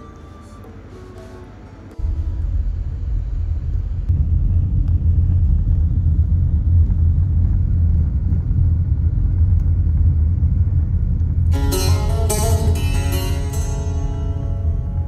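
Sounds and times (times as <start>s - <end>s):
moving car rumble: 2.0s - 15.0s
acoustic guitar music: 11.5s - 15.0s.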